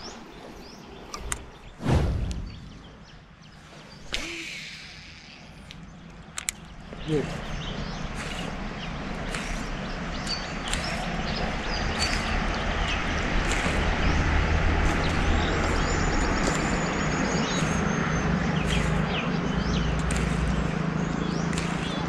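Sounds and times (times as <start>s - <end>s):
wind noise: 0.0s - 3.4s
road noise: 0.0s - 22.0s
vehicle engine humming: 0.0s - 22.0s.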